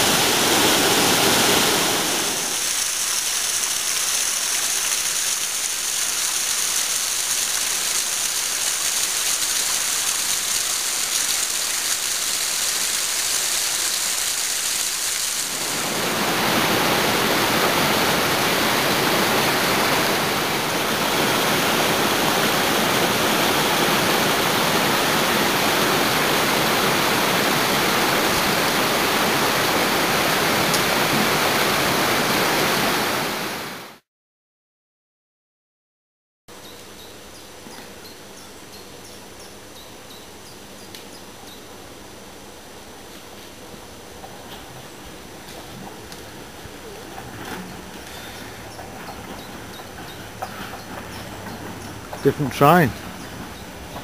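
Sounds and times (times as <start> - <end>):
waterfall splashing onto rocks: 0.0 - 33.8
stream rushing over rocks: 0.0 - 34.0, 52.3 - 53.0.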